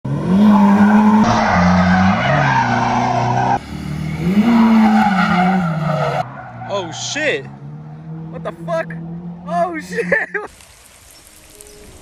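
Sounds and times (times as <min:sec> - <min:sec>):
car engine revving: 0:00.1 - 0:09.9
tyres squealing: 0:04.5 - 0:07.5.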